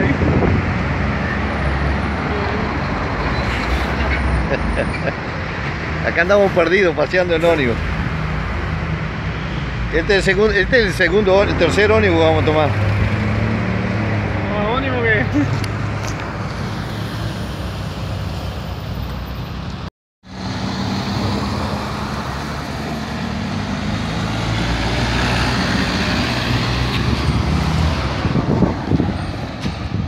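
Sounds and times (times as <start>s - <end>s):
cars and trucks passing: 0.0s - 30.0s.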